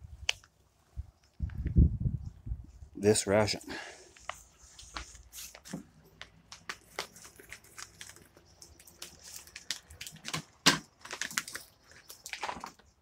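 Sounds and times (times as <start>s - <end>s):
plastic pouch crinkling: 4.1s - 12.9s.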